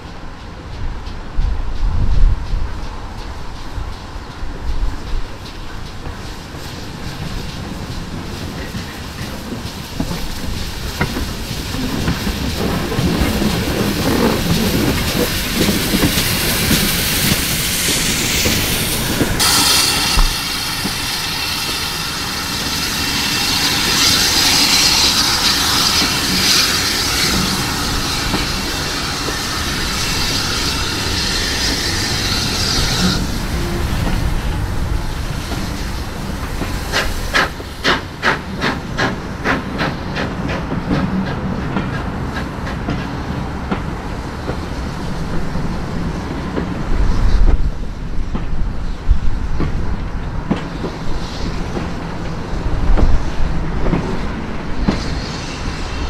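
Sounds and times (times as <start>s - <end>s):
steam locomotive arriving: 0.0s - 56.0s
steady high hiss: 16.1s - 38.3s.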